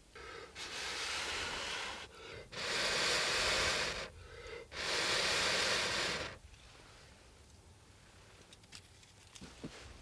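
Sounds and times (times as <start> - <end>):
man blowing on embers: 0.0 - 6.4.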